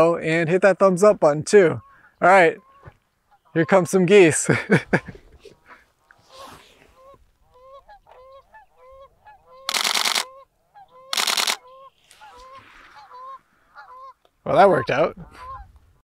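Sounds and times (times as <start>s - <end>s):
geese honking: 1.6s - 5.0s, 5.7s - 15.8s
camera shutter clicks: 9.7s - 10.3s, 11.1s - 12.2s.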